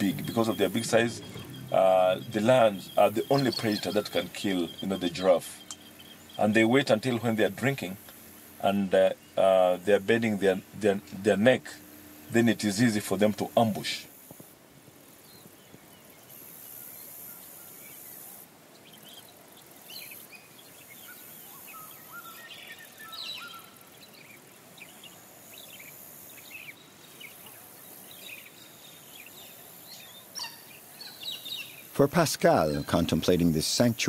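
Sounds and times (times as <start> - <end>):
bird chirps and whistled calls: 0.0 - 6.8, 19.9 - 27.6, 28.2 - 31.9, 32.5 - 33.2
high insect hiss: 0.0 - 34.0.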